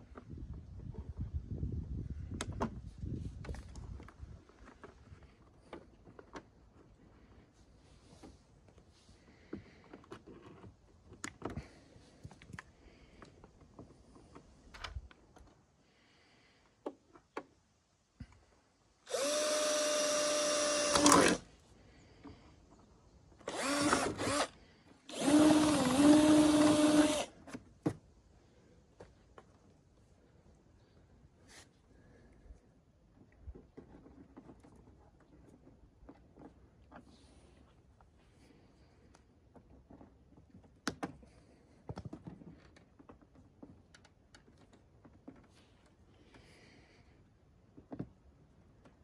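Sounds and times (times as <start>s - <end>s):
cordless drill whining: 19.1s - 21.5s, 23.4s - 27.4s.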